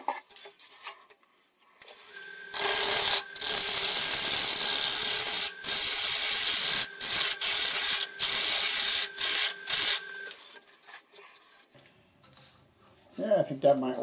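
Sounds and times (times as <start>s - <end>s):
lathe motor hum: 2.0s - 10.4s
lathe tool cutting wood: 2.0s - 10.4s.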